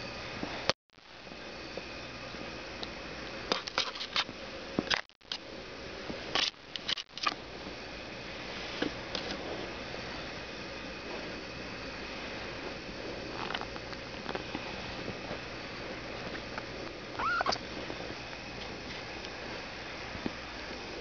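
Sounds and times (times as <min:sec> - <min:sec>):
microphone hiss: 0:04.3 - 0:21.0.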